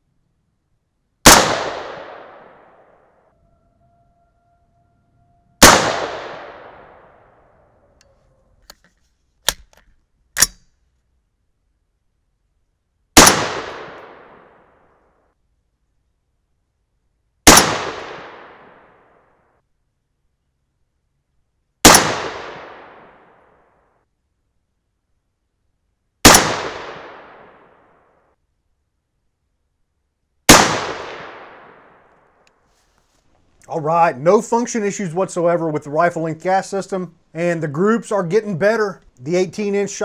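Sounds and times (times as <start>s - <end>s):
rifle shots with echo: 1.2s - 3.0s, 5.6s - 7.4s, 13.2s - 14.8s, 17.4s - 19.2s, 21.8s - 23.6s, 26.2s - 28.0s, 30.5s - 32.1s.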